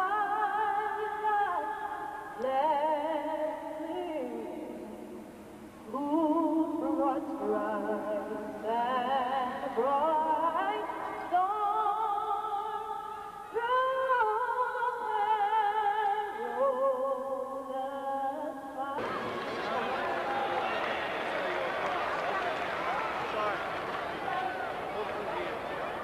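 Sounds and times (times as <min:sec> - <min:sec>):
woman singing over loudspeakers: 0:00.0 - 0:05.0, 0:05.9 - 0:19.1.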